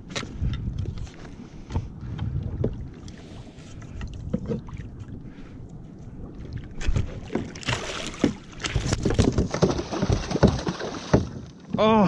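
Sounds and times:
water splashing against kayak: 6.2 - 12.0
knocks on plastic hull: 8.2 - 11.4.

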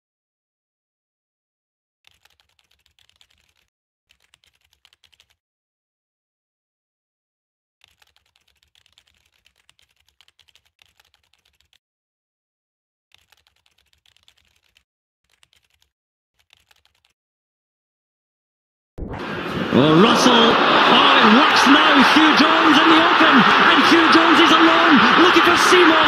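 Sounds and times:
faint computer keyboard typing: 2.1 - 5.4, 7.8 - 11.8, 13.1 - 17.2.

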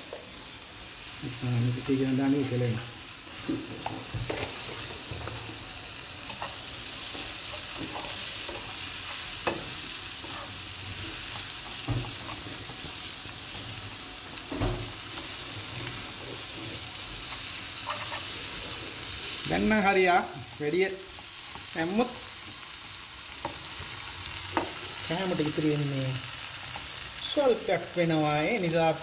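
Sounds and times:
stir-fry sizzling in frying pan: 0.0 - 29.0
spatula stirring: 1.9 - 13.7, 15.3 - 22.7.

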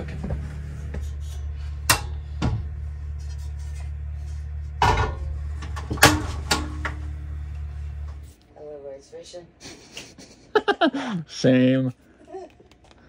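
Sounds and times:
low hum: 0.0 - 9.0
skillet scraping on metal grates: 0.5 - 8.2.

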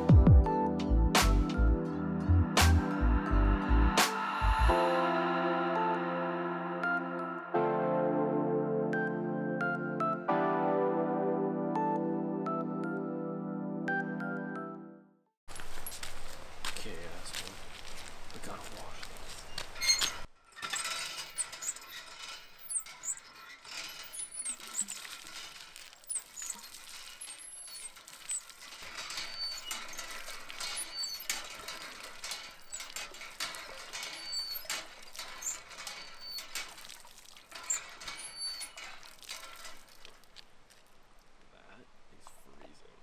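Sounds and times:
hand pump squeaking and clanking: 18.9 - 40.9
water splashing into plastic bottle: 36.5 - 37.6.

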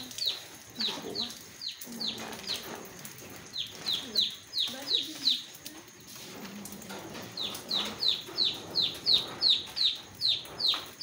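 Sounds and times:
chick peeping: 7.3 - 11.0.

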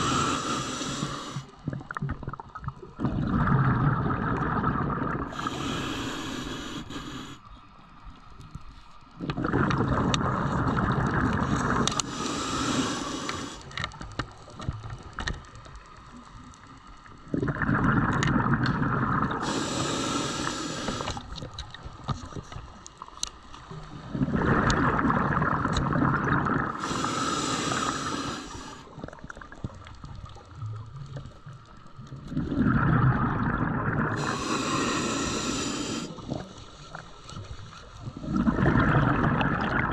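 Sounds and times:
regulator air hiss: 0.0 - 1.5, 5.3 - 7.5, 12.0 - 13.8, 19.4 - 21.3, 26.8 - 29.0, 34.2 - 37.2
exhaled bubbles underwater: 0.0 - 5.8, 9.2 - 13.6, 17.1 - 22.7, 23.7 - 39.9
small clicks: 11.6 - 12.1, 13.3 - 17.2, 21.0 - 23.7.

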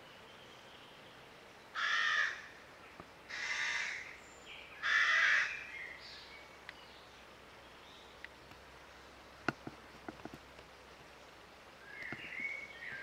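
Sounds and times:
bird calling: 11.8 - 13.0.

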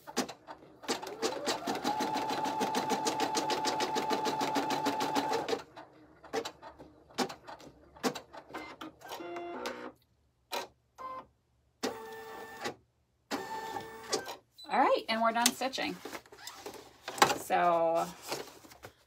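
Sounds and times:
embroidery machine stitching: 0.0 - 9.2.

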